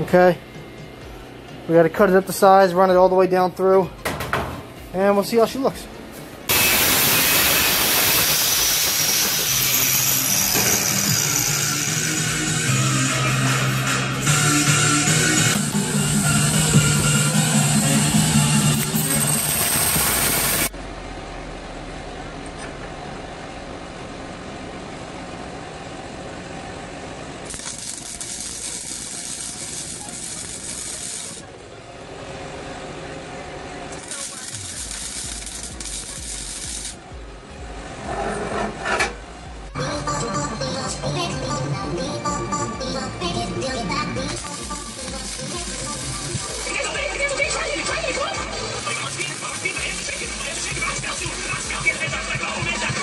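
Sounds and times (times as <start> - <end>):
angle grinder cutting steel: 6.5 - 20.7, 27.5 - 31.5, 33.9 - 37.0, 44.3 - 53.0
arc welding crackling hiss: 6.5 - 20.7, 27.5 - 31.5, 33.9 - 37.2, 44.2 - 53.0.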